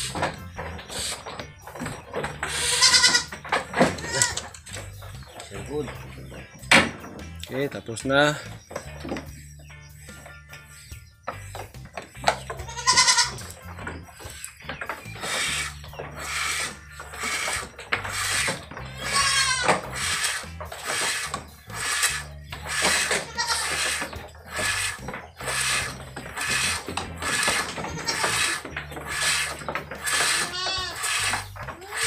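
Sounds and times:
goats bleating: 2.4s - 4.6s, 12.6s - 13.6s, 18.1s - 20.3s, 22.6s - 24.0s, 25.6s - 32.0s.

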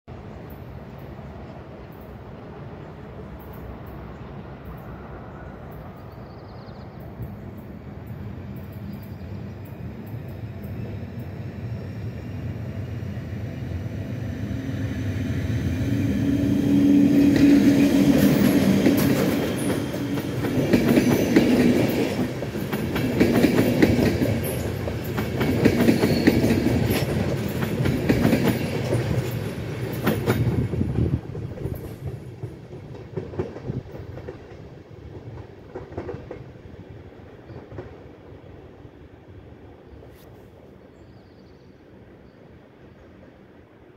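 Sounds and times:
train wheels clattering over rail joints: 17.2s - 36.6s.

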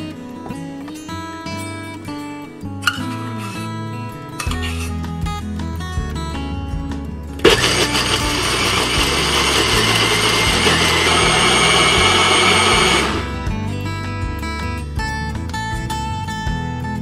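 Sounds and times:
acoustic guitar music: 0.0s - 17.0s
blender motor whirring: 7.4s - 13.4s.

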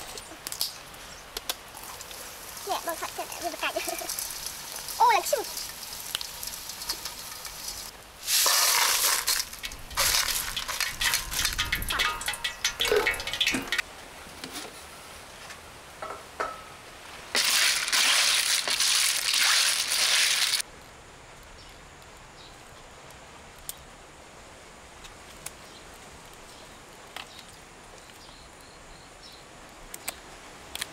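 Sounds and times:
cola fizzing and sloshing: 1.7s - 13.8s, 17.4s - 20.6s
metal tongs clinking on bowl: 11.3s - 13.8s.

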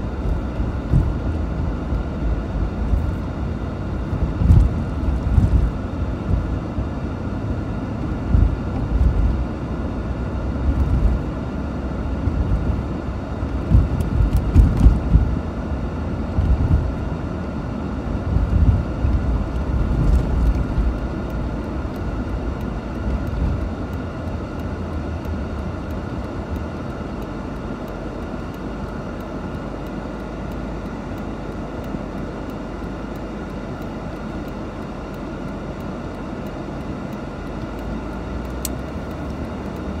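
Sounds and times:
car engine rumble: 0.0s - 40.0s
road noise: 0.0s - 40.0s
low thumps: 0.3s - 1.5s.

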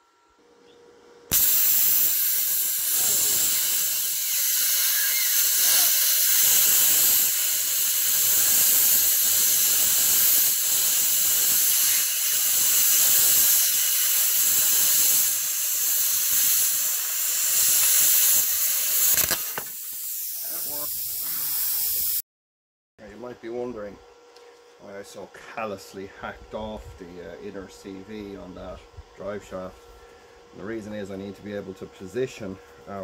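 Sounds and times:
plasma cutter hissing: 1.3s - 22.2s.

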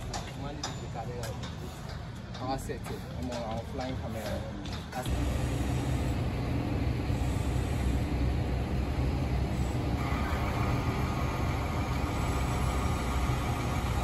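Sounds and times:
diesel engine running: 5.0s - 14.0s.

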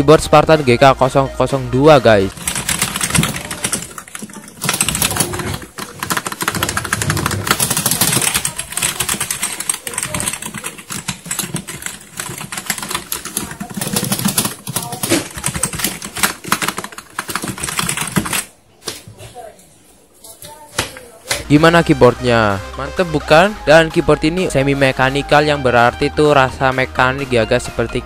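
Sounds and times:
fast keyboard typing: 2.2s - 18.5s.

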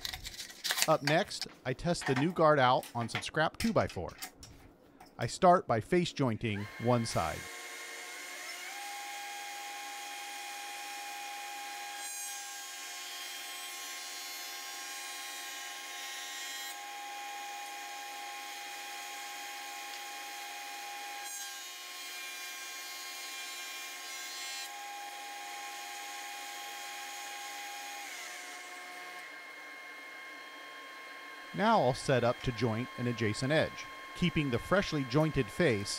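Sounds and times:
jointer whining: 31.5s - 35.9s.

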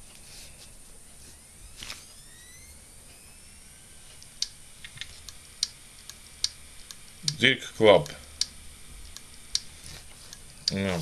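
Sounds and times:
hard drive spinning up: 0.0s - 11.0s.

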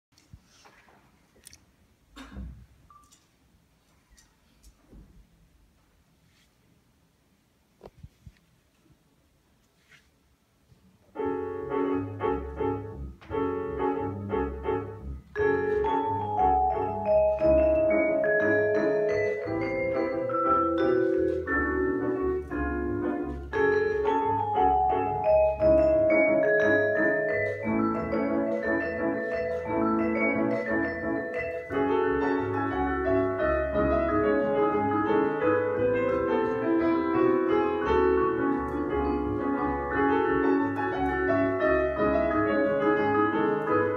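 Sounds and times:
double bass: 11.2s - 43.9s
vibraphone melody: 14.5s - 43.9s.

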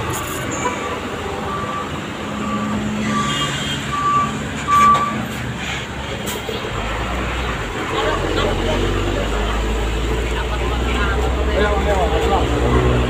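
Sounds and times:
large vehicle engines running: 0.0s - 13.0s
reversing alarm beeping: 1.4s - 5.3s.

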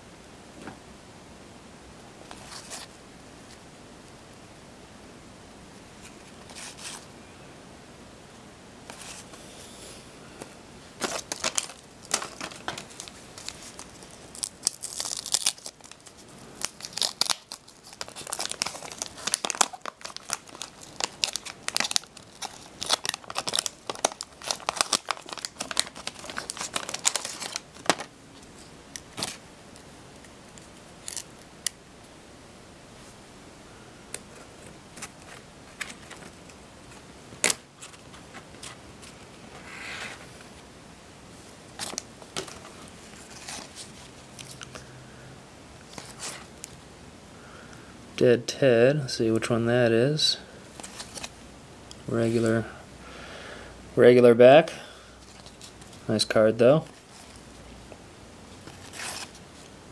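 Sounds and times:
cards clicking and rustling: 11.0s - 28.1s
wax paper wrapper tearing: 11.0s - 28.1s.

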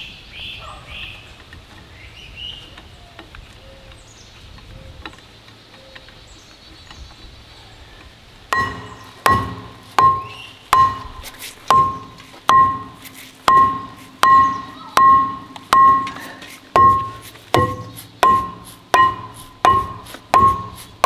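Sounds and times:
birds chirping: 0.0s - 21.0s
hammer striking steel: 8.6s - 21.0s.

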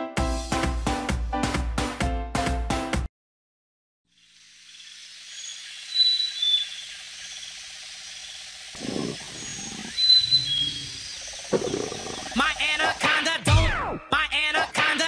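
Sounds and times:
high insect-like hiss: 4.1s - 13.3s
bird chirps: 4.6s - 12.6s
deep animal call: 8.7s - 12.9s.

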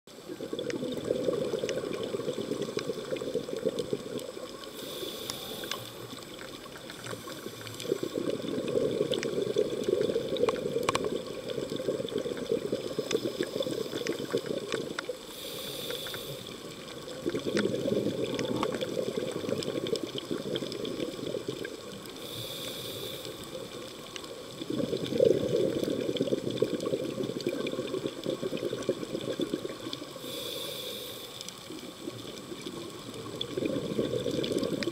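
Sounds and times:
bubbling exhale rush: 0.2s - 34.9s
regulator inhale hiss: 4.6s - 8.5s, 12.7s - 17.1s, 22.1s - 24.0s, 30.1s - 31.9s.

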